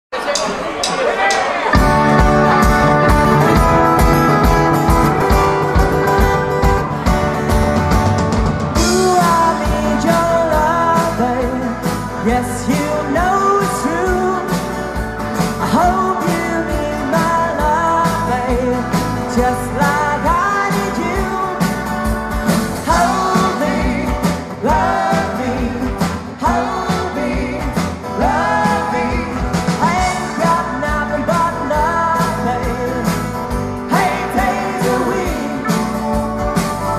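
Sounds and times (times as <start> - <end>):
rock band playing: 0.2 - 36.9
man singing lead vocal: 8.8 - 22.0, 22.7 - 36.1.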